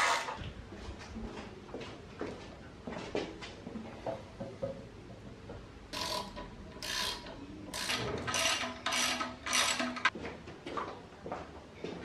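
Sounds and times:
ratchet wrench clicking: 0:06.0 - 0:10.1.

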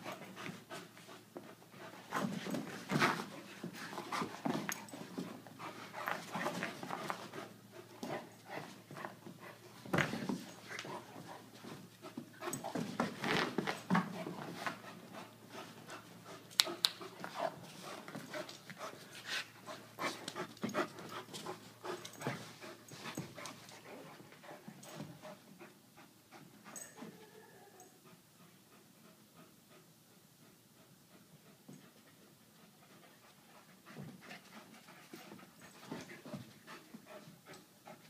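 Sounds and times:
dogs scuffling: 0:02.0 - 0:16.1
dogs panting hard: 0:13.9 - 0:27.0, 0:28.1 - 0:38.0.

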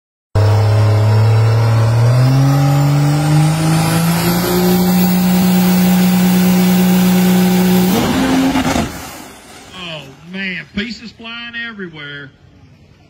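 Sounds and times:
drag car engine revving: 0:00.4 - 0:10.2.

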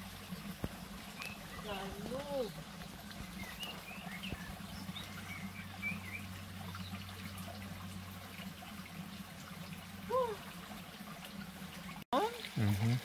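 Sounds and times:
shallow stream trickling: 0:00.0 - 0:13.0
small birds chirping: 0:00.2 - 0:07.6.

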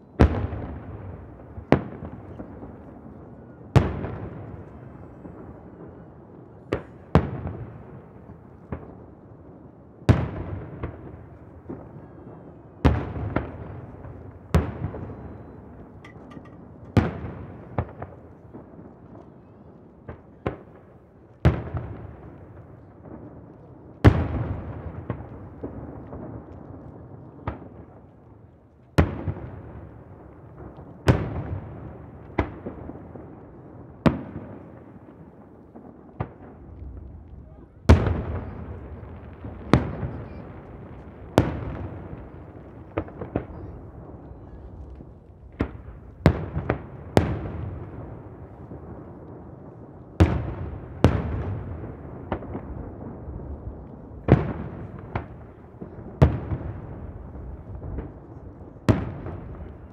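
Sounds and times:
firework booms echoing: 0:00.1 - 0:06.0, 0:10.1 - 0:19.2, 0:29.0 - 0:59.9.

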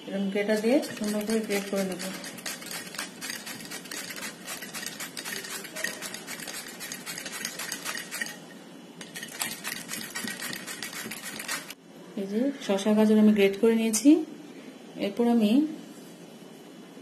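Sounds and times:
cucumber scraping on grater blades: 0:00.5 - 0:08.4, 0:09.0 - 0:11.8.

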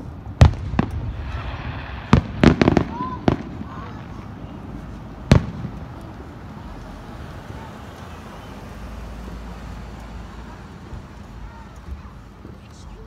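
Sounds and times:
firework bang with echo: 0:00.4 - 0:04.3, 0:05.2 - 0:06.0.

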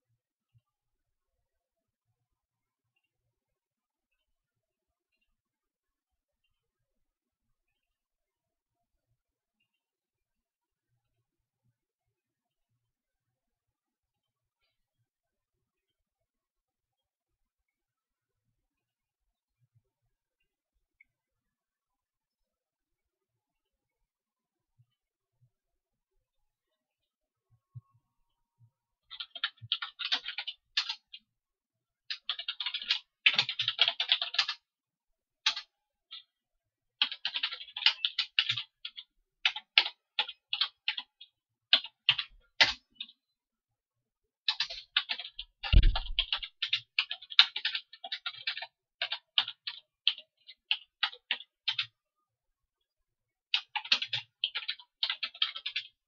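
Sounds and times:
typing on keyboard: 0:29.1 - 0:31.2, 0:32.1 - 0:34.7, 0:35.4 - 0:36.3, 0:37.0 - 0:43.2, 0:44.4 - 0:52.0, 0:53.5 - 0:56.0.

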